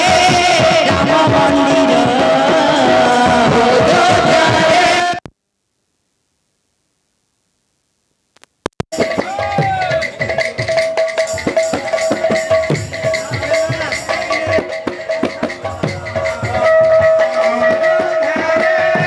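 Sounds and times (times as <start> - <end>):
dhol drums beaten: 0.0 - 5.2, 8.9 - 19.0
clicks: 8.3 - 8.9.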